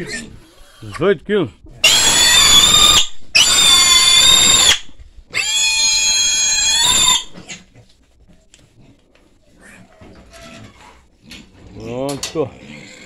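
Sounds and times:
pig squealing loudly: 0:00.0 - 0:01.0, 0:01.8 - 0:07.7.

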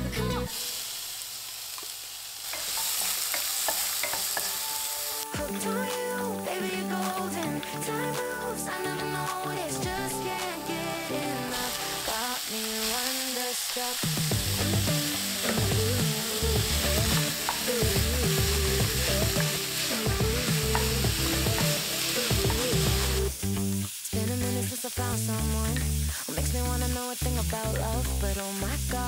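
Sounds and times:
background music: 0:00.0 - 0:00.6, 0:04.0 - 0:12.9, 0:14.0 - 0:24.8
meat and onion sizzling in a pan: 0:00.3 - 0:29.0.

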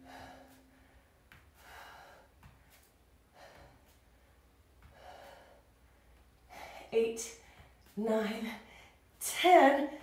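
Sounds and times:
woman breathing under exertion: 0:00.0 - 0:07.8.

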